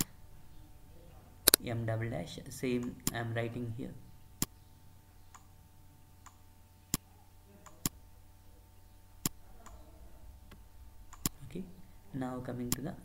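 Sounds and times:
faint low hum: 0.0 - 13.0
computer mouse clicking: 10.5 - 11.4.

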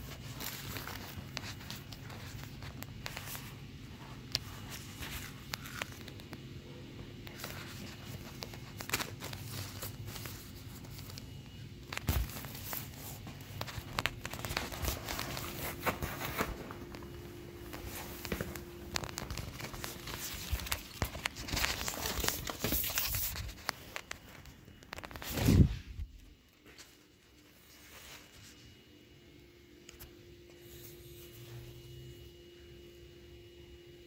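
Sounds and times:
inflatable toys crinkling: 0.0 - 25.8.

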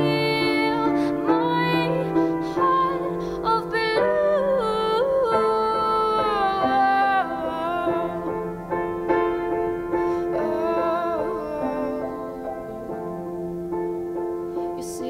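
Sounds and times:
woman singing long held notes: 0.0 - 8.5, 9.9 - 13.3, 14.6 - 15.0
piano accompaniment: 0.0 - 15.0.

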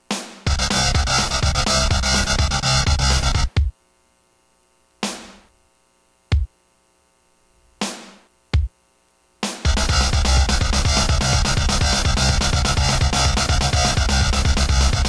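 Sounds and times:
drum machine rock beat: 0.0 - 3.8, 5.0 - 5.5, 6.3 - 6.6, 7.8 - 8.8, 9.4 - 15.0
distorted guitar: 0.4 - 3.7, 9.6 - 15.0.

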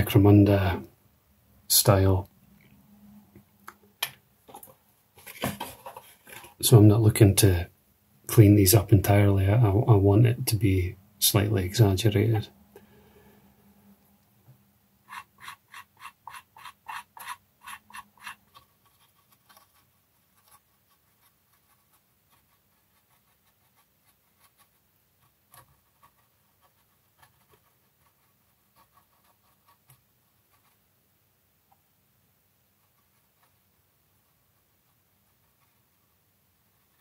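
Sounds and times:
cotton bud scrubbing plastic: 15.0 - 29.9
fine brush strokes: 15.0 - 30.8.

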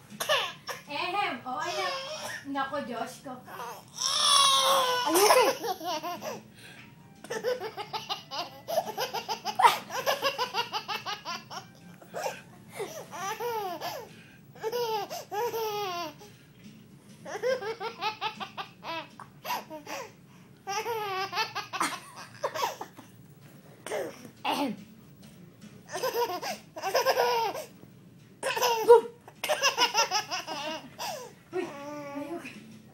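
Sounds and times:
toddler laughing: 4.6 - 6.4, 7.2 - 16.2, 17.3 - 20.0, 20.7 - 22.9, 25.9 - 27.7, 28.4 - 32.2.

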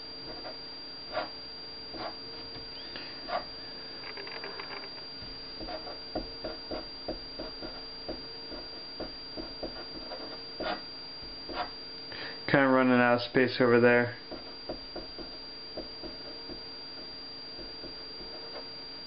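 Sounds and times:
marker writing on paper: 0.3 - 2.2, 3.2 - 3.5, 5.6 - 7.9, 8.5 - 10.8, 11.5 - 11.7.

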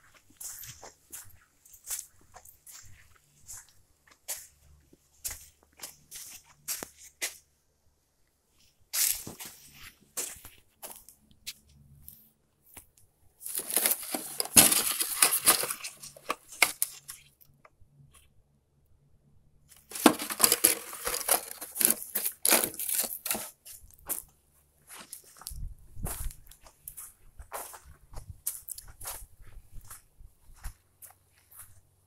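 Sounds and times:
items rustling and clattering: 13.4 - 17.6, 19.7 - 27.0.

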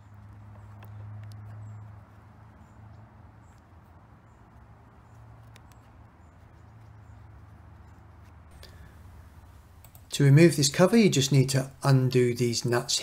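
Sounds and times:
low steady hum: 0.0 - 13.0
soft plastic clicks: 0.3 - 1.7, 5.1 - 7.0.

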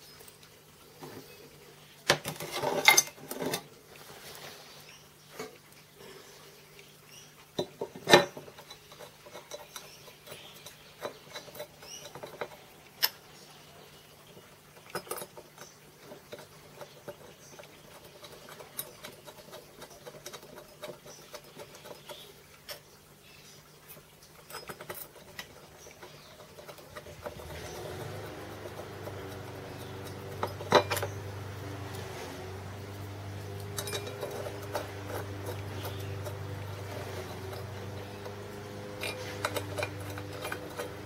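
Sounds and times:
scraping on metal parts: 2.1 - 6.4, 7.8 - 12.7, 24.4 - 41.0.

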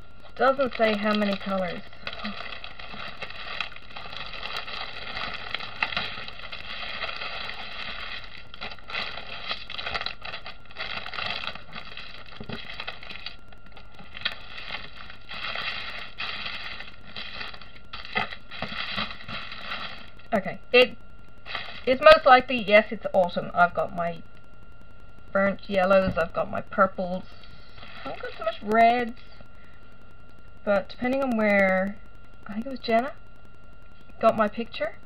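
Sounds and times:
plastic bags crinkling: 0.4 - 20.4, 21.4 - 22.3, 27.7 - 28.7.

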